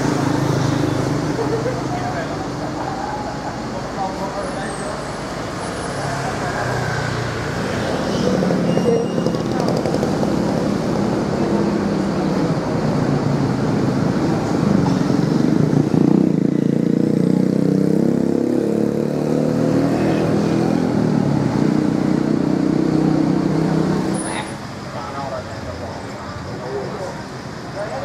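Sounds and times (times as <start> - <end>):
bus engine humming: 0.0 - 16.2.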